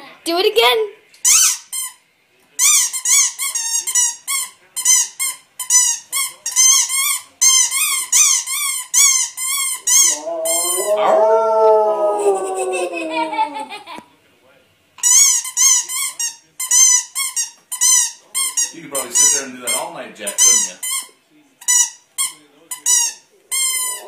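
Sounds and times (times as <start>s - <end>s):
dog howling: 9.9s - 13.8s
rubber squeak toy squeaking: 15.0s - 21.1s.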